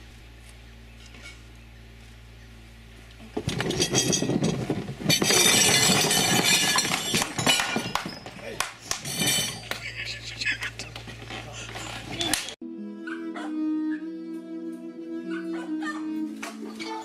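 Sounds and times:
clatter of plates and glasses: 3.4 - 10.0
table and chairs knocked about: 3.4 - 10.2.

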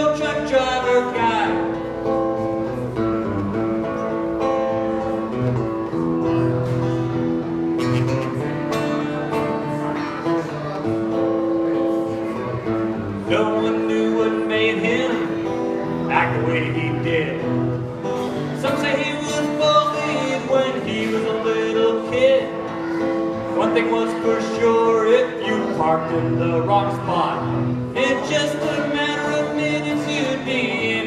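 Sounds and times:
man singing: 0.0 - 2.1, 13.2 - 31.0
acoustic guitar strumming: 0.0 - 31.0.

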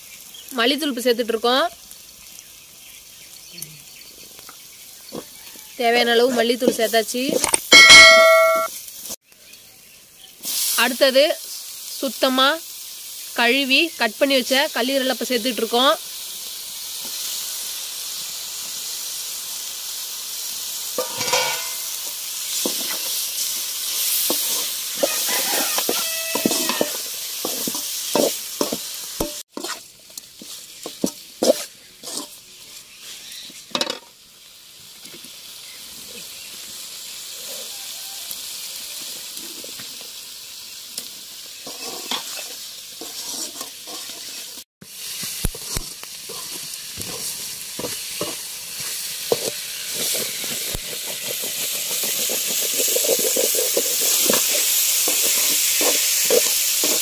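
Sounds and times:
meat sizzling in hot oil: 0.0 - 57.0
ladle scraping pan: 21.0 - 32.4, 41.6 - 44.6, 45.5 - 57.0.

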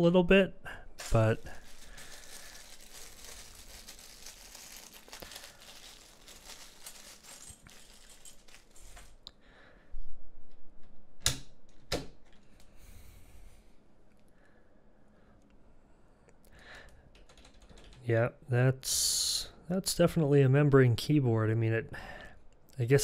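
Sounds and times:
plastic bag crinkling: 1.0 - 9.2.

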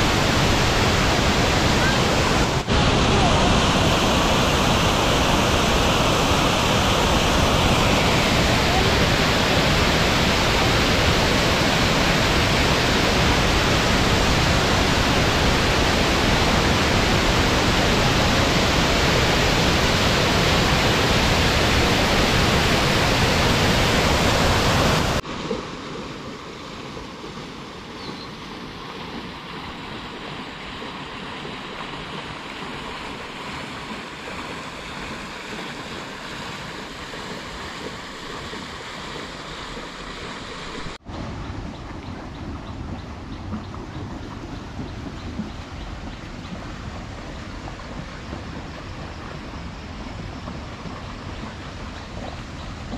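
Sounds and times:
waterfall rushing: 0.0 - 27.9
flowing water: 0.0 - 52.9.

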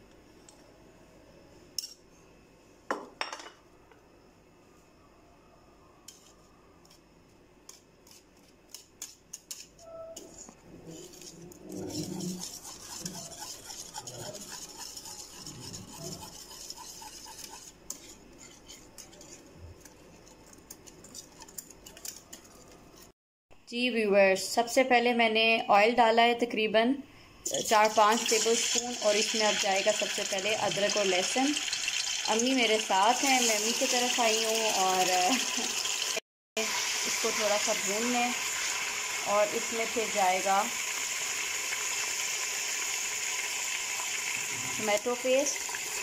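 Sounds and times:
wire whisk beating in a bowl: 10.9 - 22.8.

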